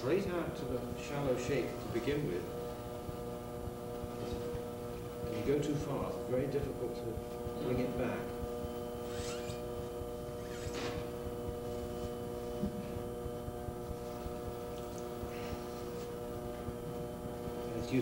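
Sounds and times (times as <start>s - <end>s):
steady electrical hum: 0.0s - 18.0s.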